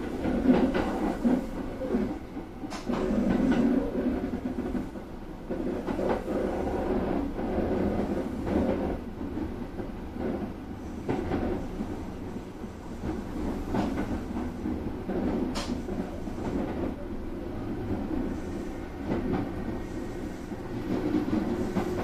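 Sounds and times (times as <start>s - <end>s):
train wheels rumbling on rail: 0.0s - 22.0s
wheels clacking over track joints: 12.9s - 17.0s.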